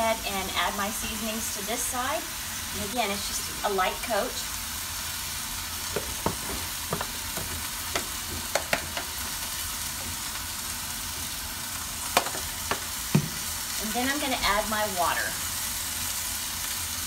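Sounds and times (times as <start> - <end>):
meat sizzling in oil: 0.0 - 17.0
sharp clicks and taps: 6.0 - 9.1.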